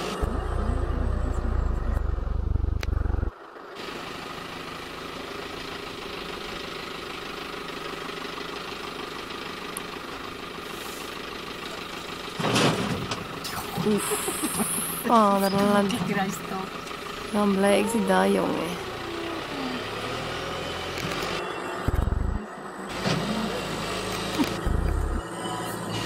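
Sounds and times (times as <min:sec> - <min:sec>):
tractor diesel engine running: 0:00.0 - 0:26.0
heavy low rumble: 0:00.1 - 0:03.3, 0:21.9 - 0:22.4, 0:24.4 - 0:25.2.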